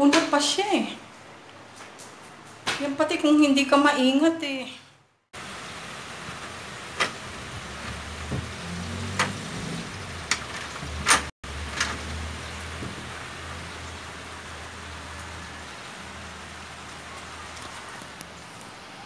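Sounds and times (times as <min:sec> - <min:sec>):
rain on a metal roof: 0:05.4 - 0:19.0.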